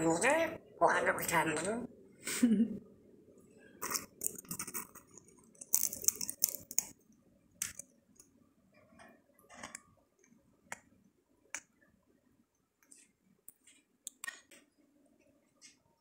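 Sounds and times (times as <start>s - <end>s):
parrot beak cracking seeds: 3.8s - 7.0s.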